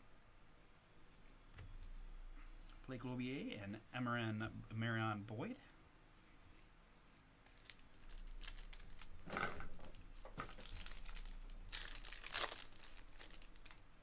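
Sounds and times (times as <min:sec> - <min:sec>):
foil wrapper tearing and crinkling: 0:07.5 - 0:09.3, 0:09.9 - 0:13.8.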